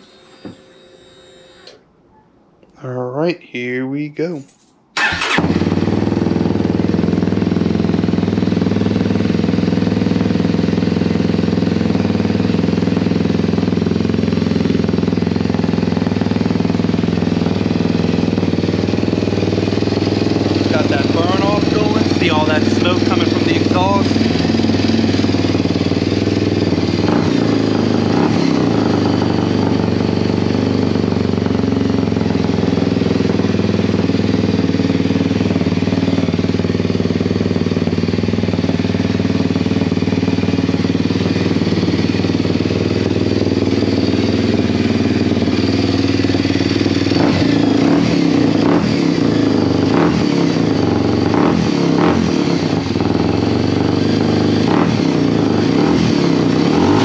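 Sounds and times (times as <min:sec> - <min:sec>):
motorcycle engine idling loudly: 0:05.0 - 0:57.0.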